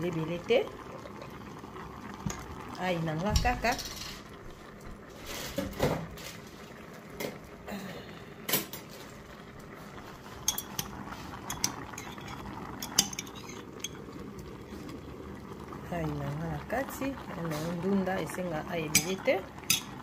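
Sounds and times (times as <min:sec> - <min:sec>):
pot simmering hiss: 0:00.0 - 0:20.0
metal ladle clinking against pot: 0:18.9 - 0:20.0.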